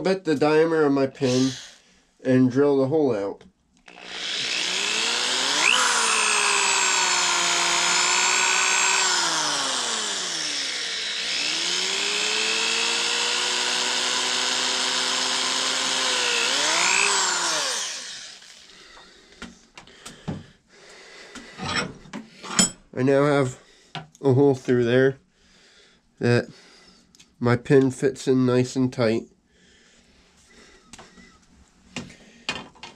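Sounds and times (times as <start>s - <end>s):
electric drill running: 1.2s - 1.8s, 3.8s - 19.0s.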